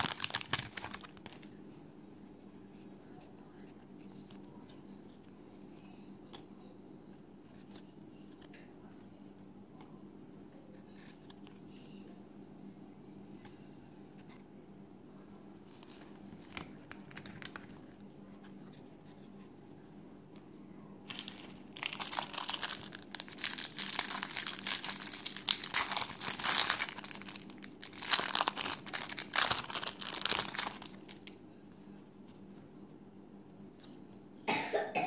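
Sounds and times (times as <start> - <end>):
plastic wrapper crinkling and tearing: 0.0 - 1.5, 15.7 - 17.9, 21.1 - 31.4.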